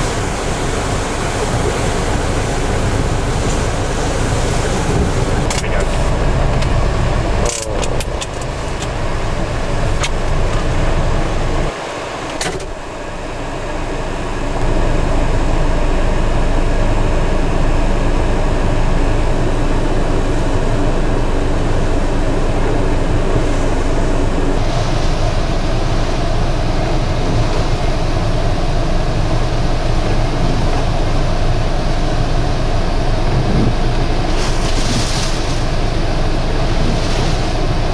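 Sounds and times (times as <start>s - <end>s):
wind buffeting microphone: 0.0s - 13.0s
pounding surf: 0.0s - 17.1s, 17.7s - 37.9s.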